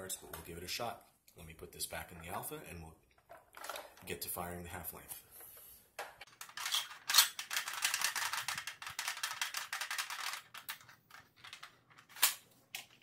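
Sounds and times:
plastic clicking and rattling: 6.0s - 13.0s.

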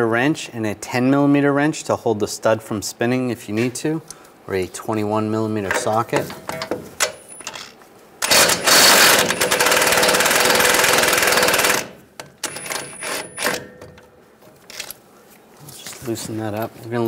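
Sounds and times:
impact wrench hammering: 8.2s - 14.0s.

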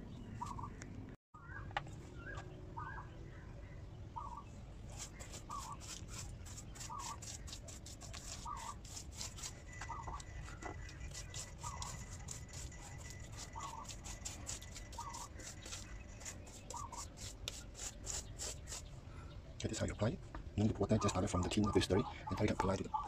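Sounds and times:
paintbrush scratching on concrete: 4.8s - 18.9s
bird call: 14.9s - 17.1s.

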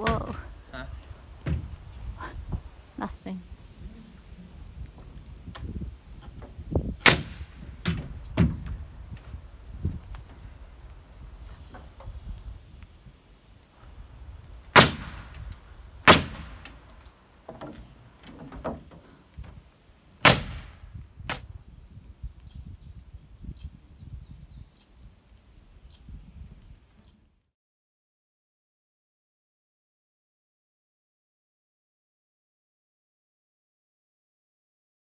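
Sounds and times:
nail gun shots: 7.0s - 8.6s, 14.7s - 15.4s, 16.0s - 16.8s, 20.2s - 21.5s.

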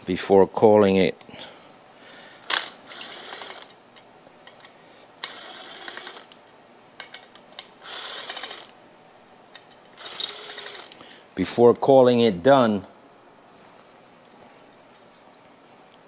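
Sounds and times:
impact driver tightening bolts: 2.4s - 3.7s, 5.2s - 6.4s, 10.0s - 11.0s.

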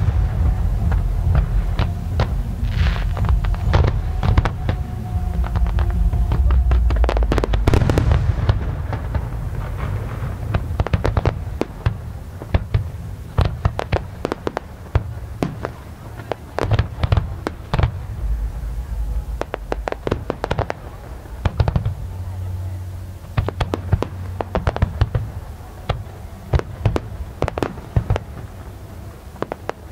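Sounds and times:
firework booms: 0.0s - 22.5s
firework crackling pops: 0.0s - 22.5s, 23.2s - 29.9s.

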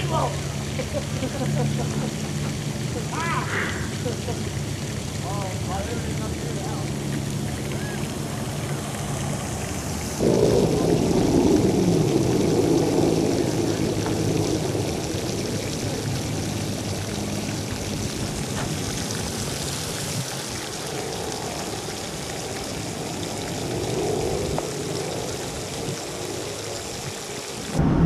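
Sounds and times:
steady rushing noise: 23.6s - 28.0s.

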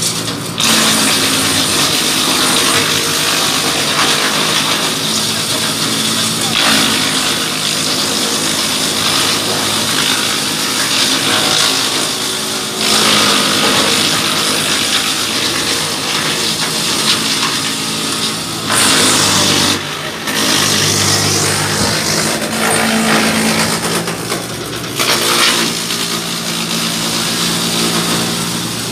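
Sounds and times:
wood chipper shredding branches: 0.0s - 28.9s
tractor engine humming: 14.1s - 25.1s.

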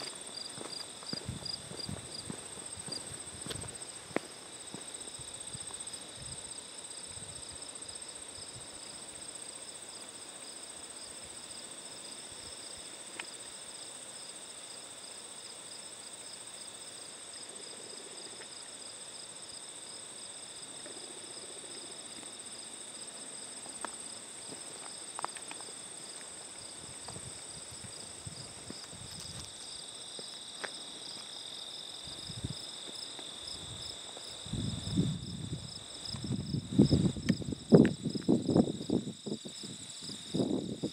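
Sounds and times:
meadow insects singing: 24.8s - 40.9s.

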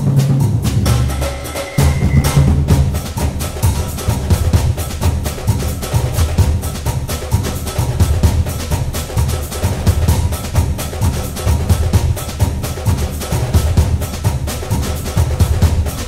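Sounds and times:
music with percussive beat: 0.0s - 16.0s.

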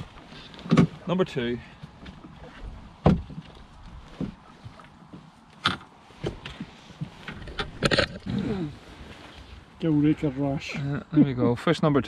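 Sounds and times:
knocks in a small boat: 1.9s - 4.8s.

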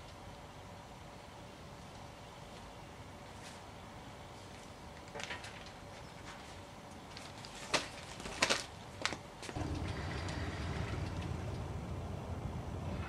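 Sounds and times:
car engine running: 9.6s - 13.0s.

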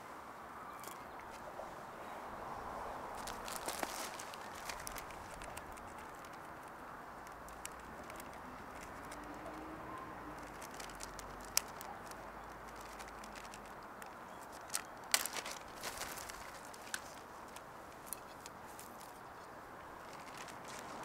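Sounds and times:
plastic bag crinkling: 3.2s - 9.6s, 10.2s - 19.2s, 20.0s - 21.0s.

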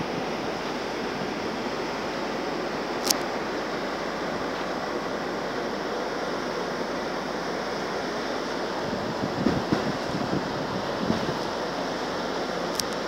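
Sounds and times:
rushing water: 0.0s - 13.0s
wind: 0.0s - 13.0s
wind gusts buffeting microphone: 8.8s - 11.6s.

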